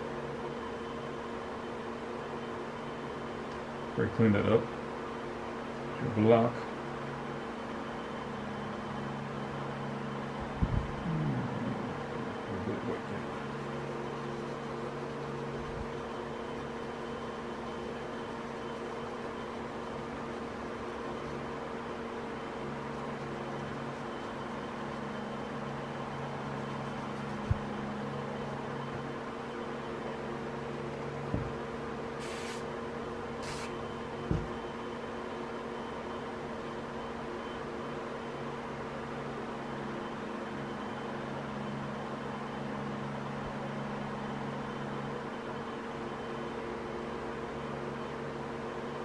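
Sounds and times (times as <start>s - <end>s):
machine humming: 8.3s - 35.2s.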